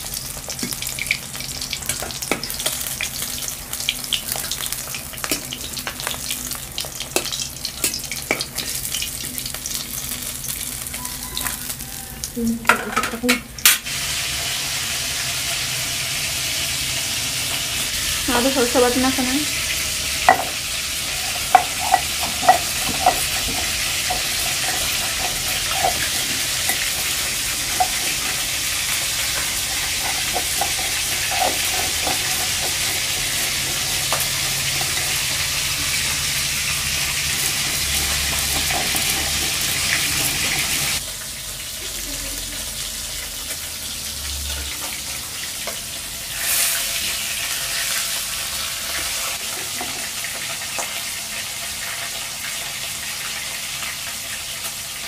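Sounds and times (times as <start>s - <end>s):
stone roller scraping on stone: 21.2s - 28.4s, 29.3s - 34.1s, 37.4s - 41.0s.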